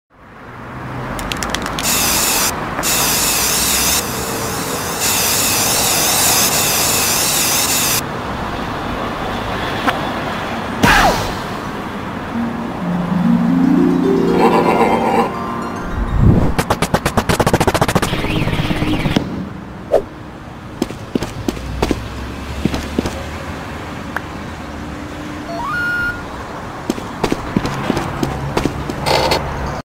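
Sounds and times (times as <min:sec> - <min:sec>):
street traffic: 0:00.1 - 0:29.8
cartoon tone rising in steps: 0:12.3 - 0:19.1, 0:25.5 - 0:26.4.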